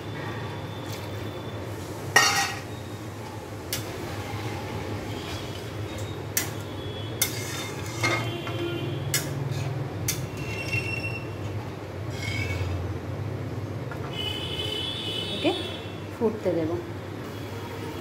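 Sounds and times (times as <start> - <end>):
metal spatula scraping a pan: 2.2 - 2.7, 7.2 - 12.8
high metal squeaks: 9.5 - 11.4, 12.1 - 12.8.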